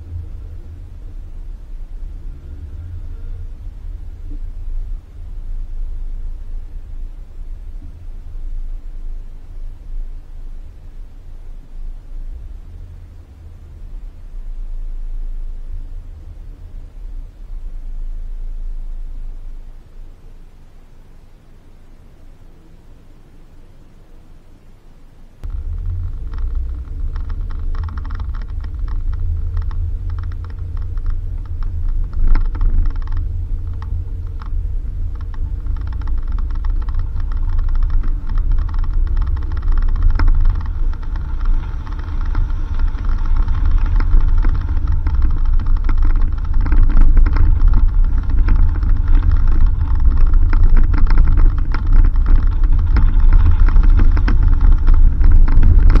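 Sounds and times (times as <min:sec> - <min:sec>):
car driving on dirt road: 0:00.0 - 0:24.8, 0:25.4 - 0:56.0
small rattles and clicks: 0:25.4 - 0:56.0.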